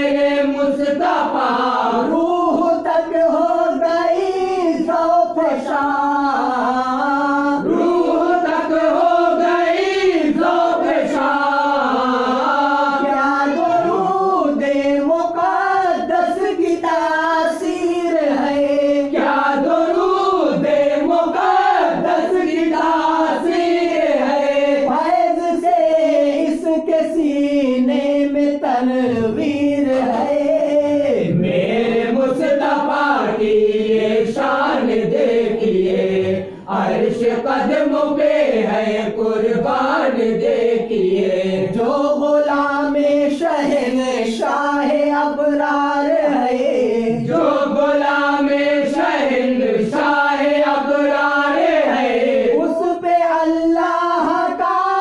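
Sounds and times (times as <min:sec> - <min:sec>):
vocal chorus singing: 0:00.0 - 0:55.0.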